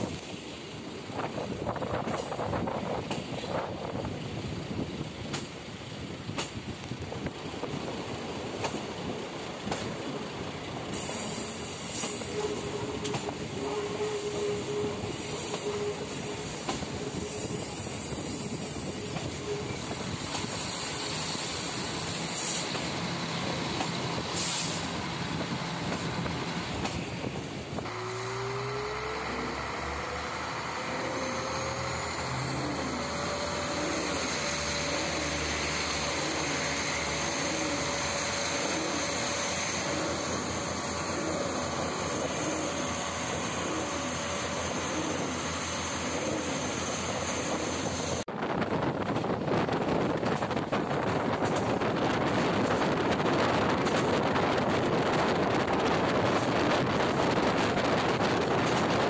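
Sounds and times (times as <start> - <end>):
train wheels rumbling on rails: 0.0 - 59.0
train engine rising in pitch: 7.4 - 48.3
high wheel squeal: 11.0 - 22.9, 27.9 - 48.2.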